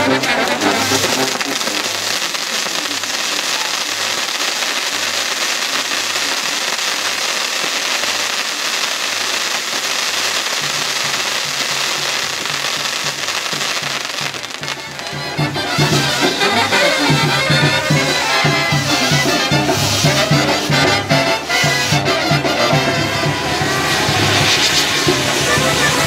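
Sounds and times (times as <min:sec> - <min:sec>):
brass band bass beat: 0:00.0 - 0:02.6, 0:14.4 - 0:26.0
crackle and hiss of sparks: 0:00.0 - 0:15.2, 0:17.6 - 0:22.1, 0:23.3 - 0:26.0.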